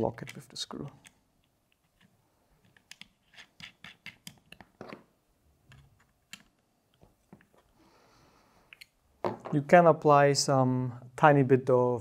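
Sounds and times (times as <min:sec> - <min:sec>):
small screw clicking and scraping: 0:00.2 - 0:05.0.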